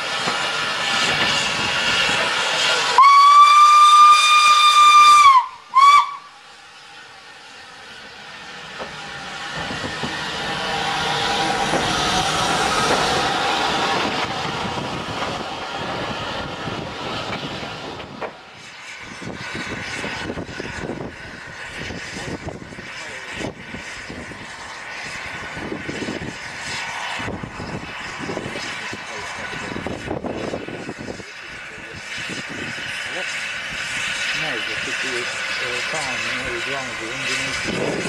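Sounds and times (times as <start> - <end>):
train wheels rumbling: 0.0 - 38.0
steam locomotive whistle: 2.8 - 6.4.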